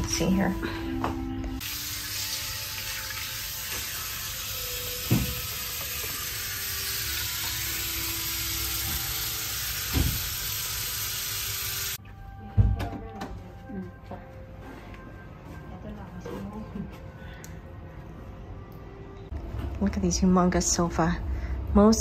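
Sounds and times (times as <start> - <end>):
water running from a tap: 1.6 - 12.0.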